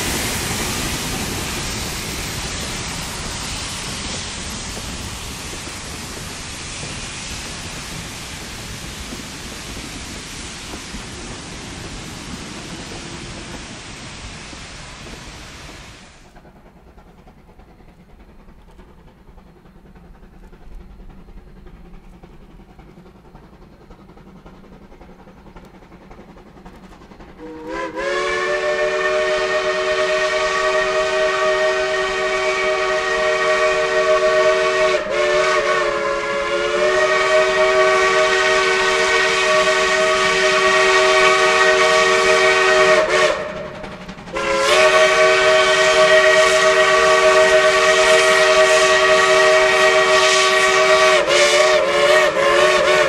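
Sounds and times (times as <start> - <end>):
steam whistle chord: 27.4 - 43.7, 44.4 - 53.0.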